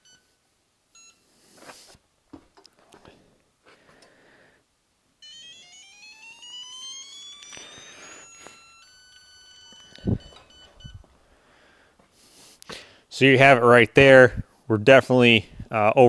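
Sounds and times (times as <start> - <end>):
rising electronic tone: 5.2 - 11.1
steady alarm tones: 5.2 - 11.7.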